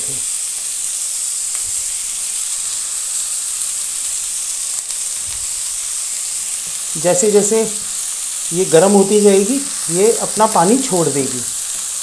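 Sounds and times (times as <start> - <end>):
oil and spices sizzling: 0.0 - 12.0.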